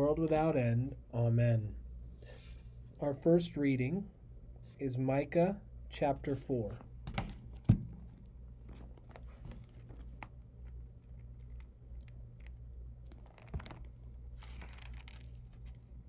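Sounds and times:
low steady hum: 0.0s - 16.0s
small thump: 7.0s - 8.1s
paper pages turning: 8.6s - 16.0s.

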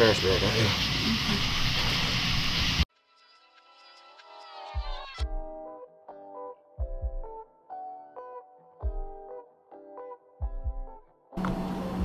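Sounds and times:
deep thumping beat: 6.8s - 7.4s, 10.4s - 12.0s.

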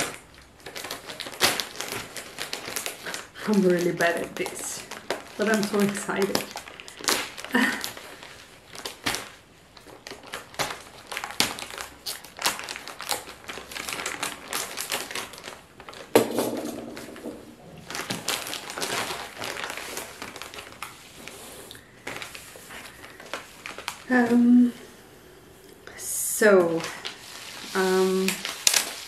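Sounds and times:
plastic bag crinkling: 0.6s - 21.3s, 22.0s - 24.1s.

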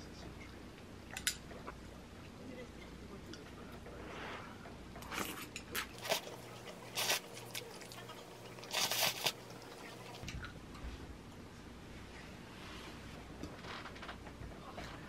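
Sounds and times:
person chewing noisily: 5.2s - 10.3s.

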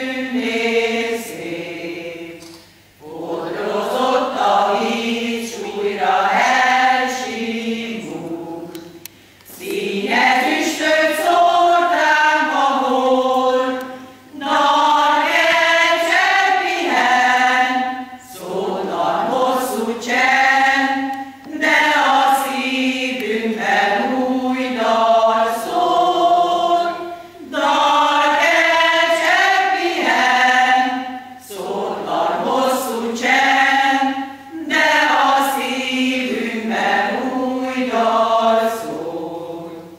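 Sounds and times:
women's choir singing: 0.0s - 39.9s.

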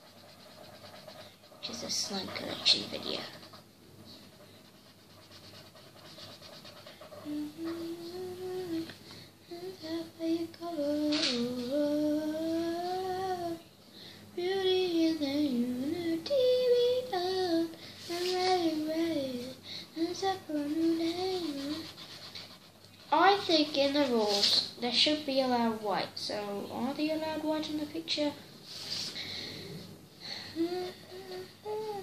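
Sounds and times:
girl singing: 5.7s - 13.7s, 14.3s - 28.4s, 30.4s - 32.0s.

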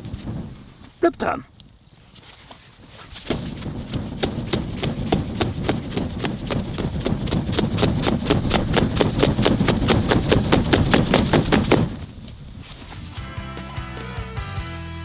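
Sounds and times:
hand fan whooshing flaps: 2.1s - 13.2s.

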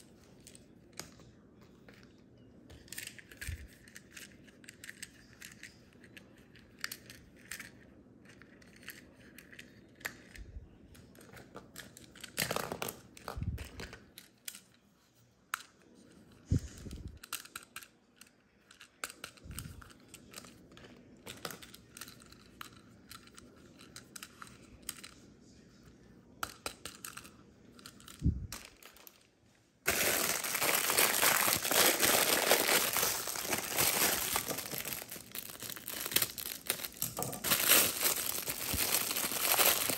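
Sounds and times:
plastic bag crinkling: 29.9s - 39.9s.

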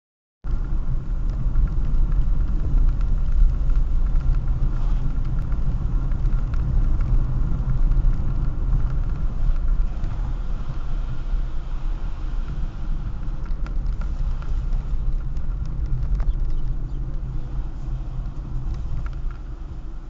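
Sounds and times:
car engine and road noise: 0.4s - 20.0s.

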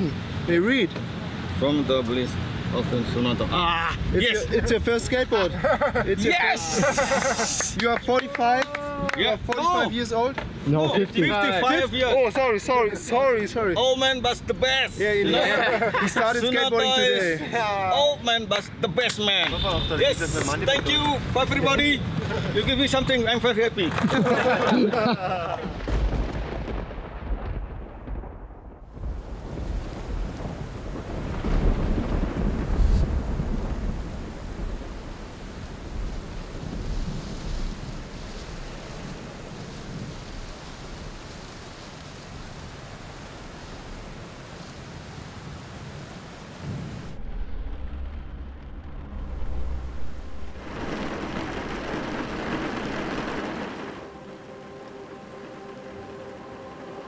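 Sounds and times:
heavy rain: 0.0s - 57.0s
rolling thunder: 25.6s - 41.2s, 46.5s - 54.4s.

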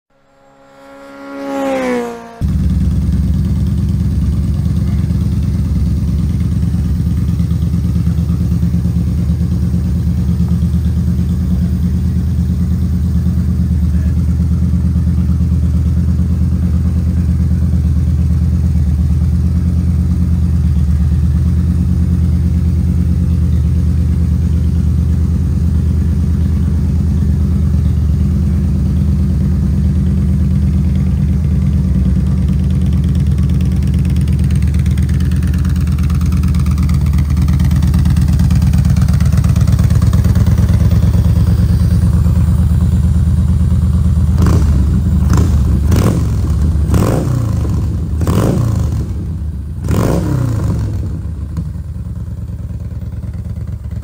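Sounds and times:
short rising tone: 0.1s - 2.7s
motorcycle engine idling: 0.1s - 54.0s.

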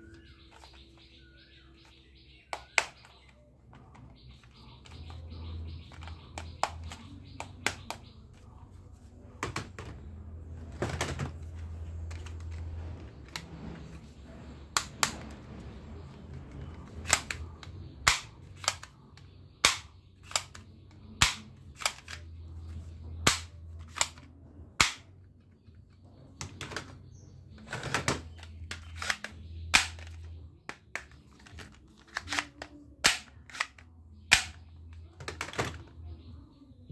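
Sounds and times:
plastic toy gun clicks: 17.0s - 19.0s, 19.6s - 20.6s, 21.2s - 22.3s, 23.3s - 25.1s, 28.0s - 35.8s.

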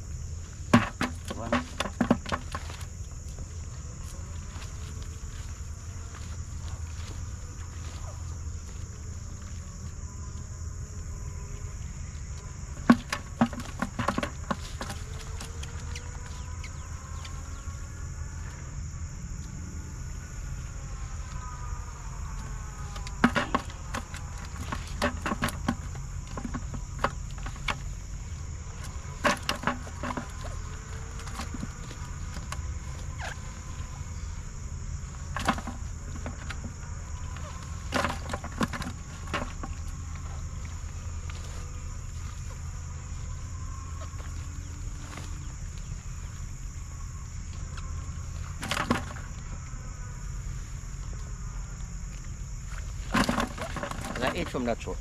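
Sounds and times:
high-pitched insect chorus: 0.0s - 55.0s
sharp knocks and clatters: 0.7s - 2.9s, 12.8s - 15.6s, 23.0s - 27.9s, 29.2s - 30.6s, 35.3s - 36.8s, 53.0s - 54.7s.

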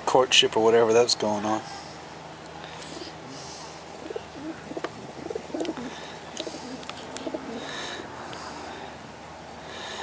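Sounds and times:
pigeons cooing: 2.8s - 8.8s.

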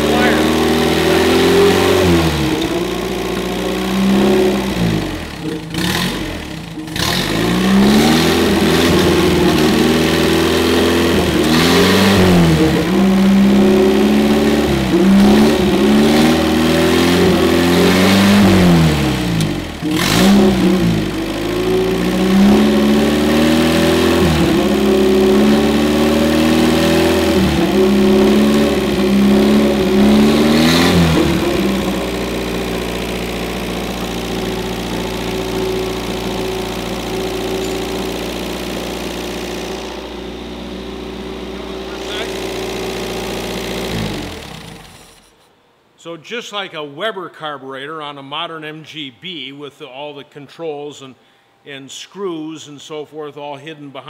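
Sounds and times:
car engine running: 0.0s - 45.4s.

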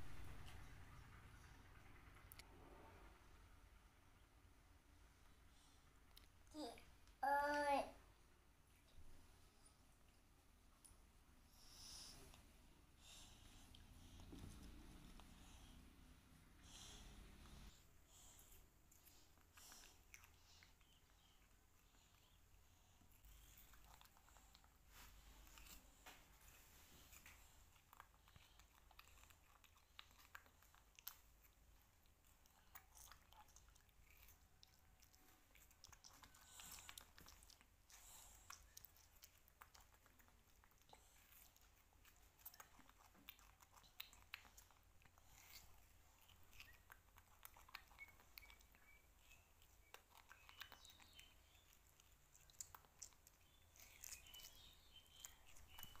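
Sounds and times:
chewing and biting fruit: 11.9s - 56.0s.

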